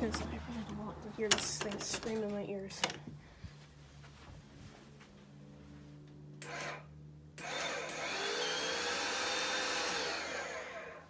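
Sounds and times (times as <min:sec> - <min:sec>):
carpet cleaner motor whine: 0:06.4 - 0:11.0.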